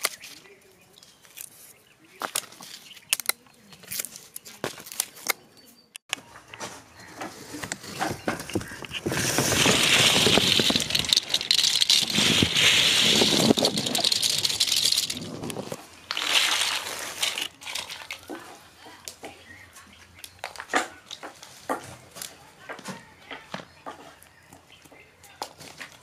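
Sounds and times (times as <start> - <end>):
plastic caps clattering and rattling: 7.6 - 19.2.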